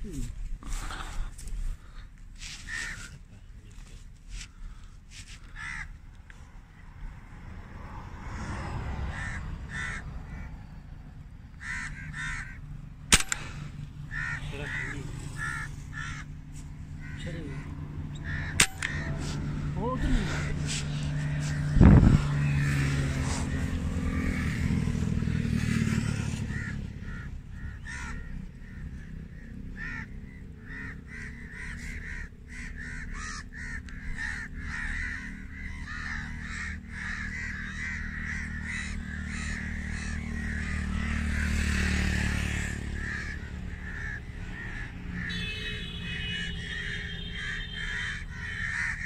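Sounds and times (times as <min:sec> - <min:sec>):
birds calling harshly: 0:00.0 - 0:49.0
steady low rumble: 0:09.8 - 0:22.6.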